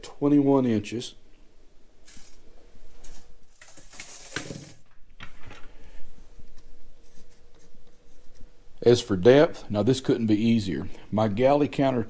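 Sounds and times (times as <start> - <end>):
hands handling tools and wood: 2.0 - 8.6.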